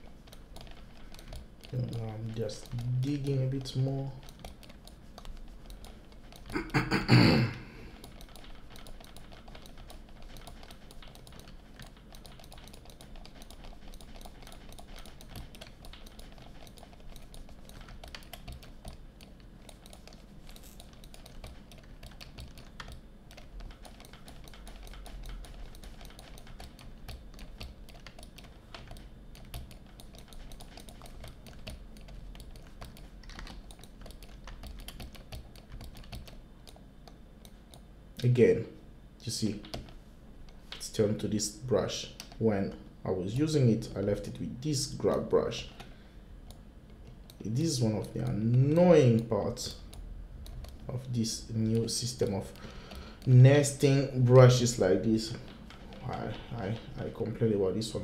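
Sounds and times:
keyboard keys clicking: 0.0s - 6.6s, 8.0s - 37.8s.

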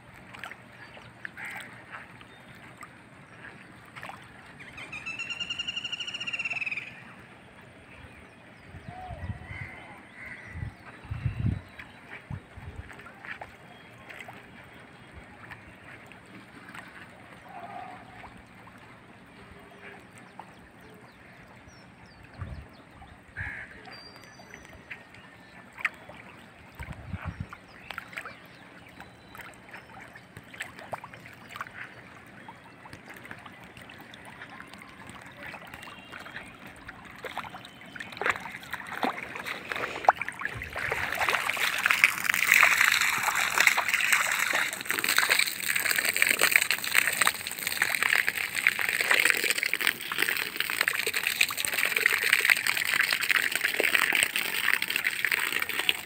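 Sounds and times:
water splashing from hose: 32.9s - 56.0s.

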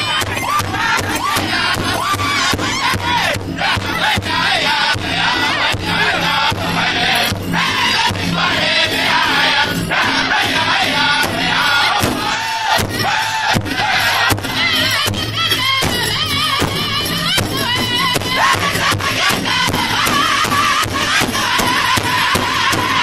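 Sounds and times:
large drum steady beat: 0.0s - 23.0s
men singing in unison: 0.0s - 23.0s.

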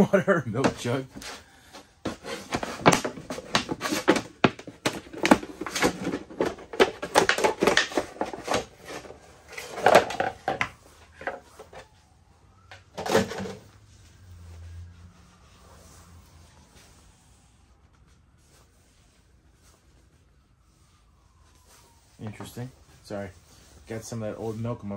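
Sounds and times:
plastic clicks and crackles: 2.9s - 11.8s.

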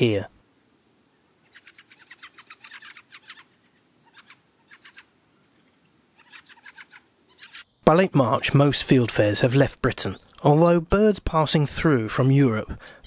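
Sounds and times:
bird harsh chacking call: 1.4s - 5.1s, 6.2s - 9.5s, 12.8s - 13.0s.

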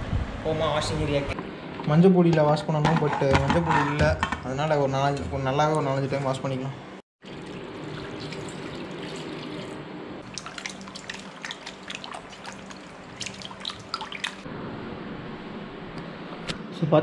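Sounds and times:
water pouring into a steel pot: 7.2s - 14.4s
hands washing meat in water: 7.2s - 14.5s
wet splashes and drips: 7.2s - 14.5s.

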